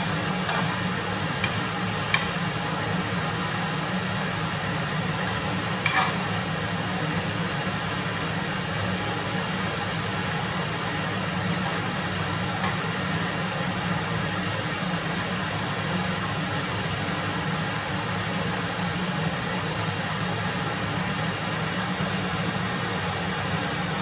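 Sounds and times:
scallops sizzling in oil: 0:00.0 - 0:24.0
steady low hum: 0:00.0 - 0:24.0
chopsticks tapping pan: 0:00.4 - 0:00.8, 0:01.4 - 0:02.4, 0:05.2 - 0:06.2.

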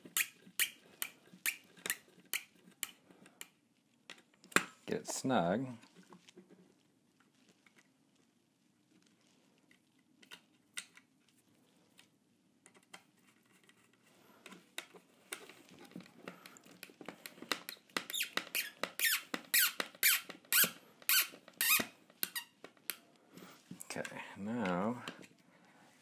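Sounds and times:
plastic squeaks and creaks: 0:00.0 - 0:02.8, 0:13.3 - 0:23.0.

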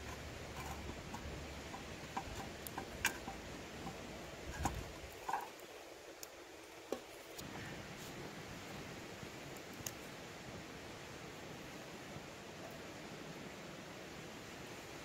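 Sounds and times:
fork tapping and scraping pan: 0:00.0 - 0:05.5
wood fire crackling: 0:00.0 - 0:10.6.

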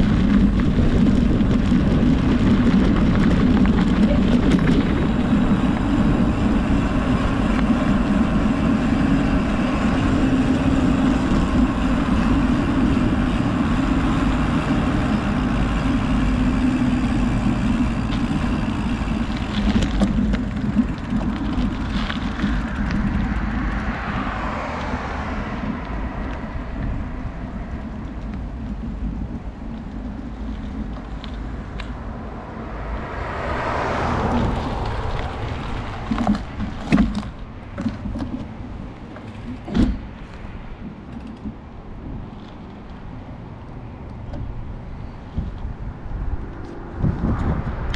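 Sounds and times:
road vehicle rumbling: 0:00.0 - 0:47.9.

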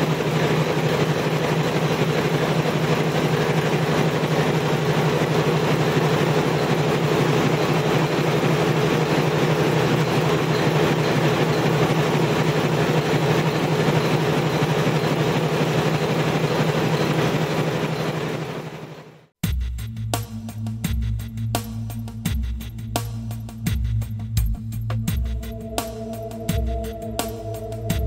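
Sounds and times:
machine humming: 0:00.0 - 0:19.2, 0:25.1 - 0:28.0.

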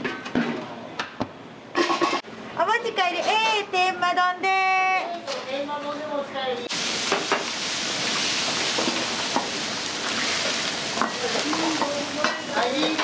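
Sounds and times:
food sizzling in a wok: 0:06.7 - 0:13.0.

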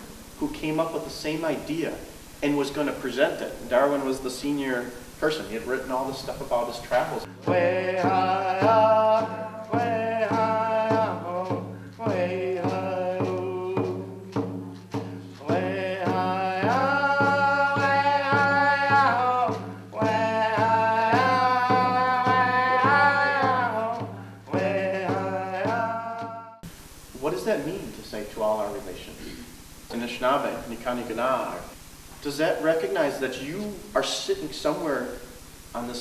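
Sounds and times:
steady drum beat: 0:00.0 - 0:36.0
person singing long notes: 0:07.3 - 0:26.7.

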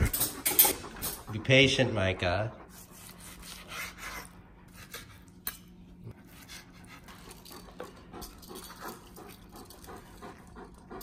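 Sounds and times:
utensils scraping and clinking: 0:00.0 - 0:01.5.

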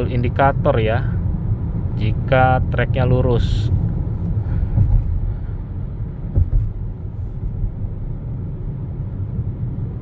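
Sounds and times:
road and tyre noise in car: 0:00.0 - 0:10.0
car bumps: 0:04.2 - 0:05.3, 0:06.2 - 0:07.7.

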